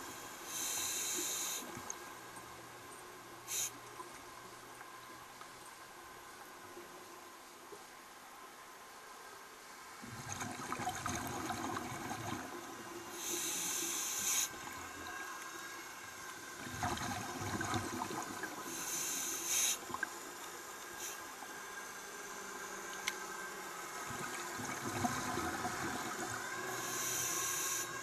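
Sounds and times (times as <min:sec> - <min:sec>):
regulator inhale hiss: 0:00.4 - 0:01.8, 0:03.4 - 0:03.8, 0:13.0 - 0:15.2, 0:18.6 - 0:19.9, 0:21.0 - 0:22.0, 0:26.7 - 0:28.0
bubbling exhaled air underwater: 0:10.0 - 0:12.6, 0:16.6 - 0:18.7, 0:24.0 - 0:26.6.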